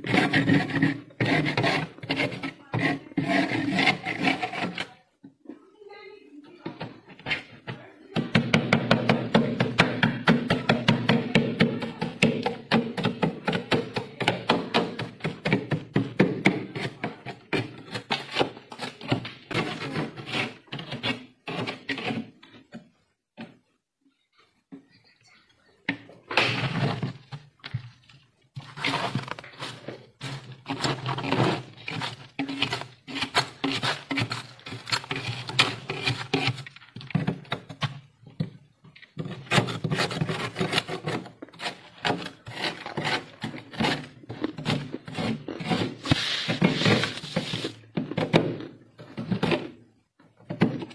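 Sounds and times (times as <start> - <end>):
knife scraping frost: 0.0 - 4.9, 28.6 - 36.8, 39.2 - 47.8.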